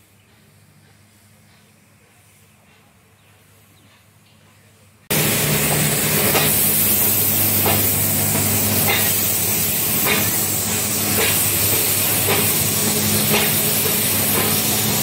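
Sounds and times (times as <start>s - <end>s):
steam locomotive hissing: 5.1s - 15.0s.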